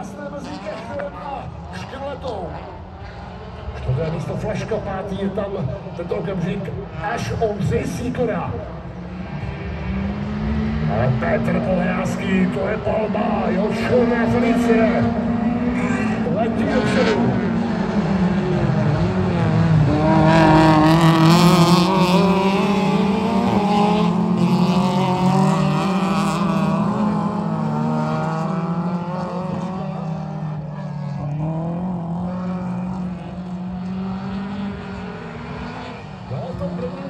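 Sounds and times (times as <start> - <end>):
racing car engines revving: 0.0 - 37.0.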